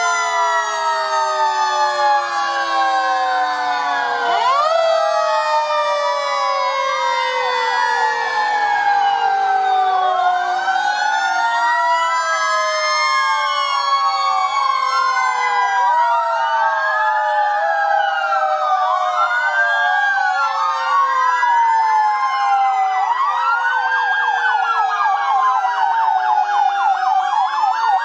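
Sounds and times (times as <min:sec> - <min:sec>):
fire truck sirens wailing: 0:00.0 - 0:28.0.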